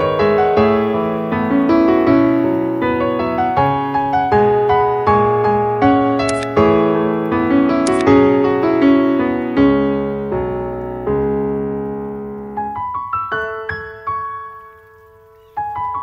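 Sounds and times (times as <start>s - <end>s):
slow piano music: 0.0s - 16.0s.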